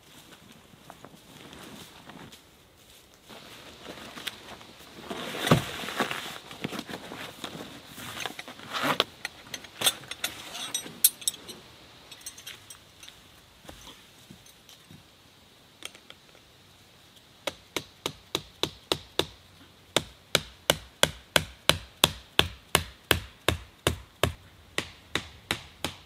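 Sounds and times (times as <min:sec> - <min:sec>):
canvas rustling: 0:00.0 - 0:11.7
steel tent stakes clinking: 0:03.4 - 0:14.9, 0:15.8 - 0:16.5.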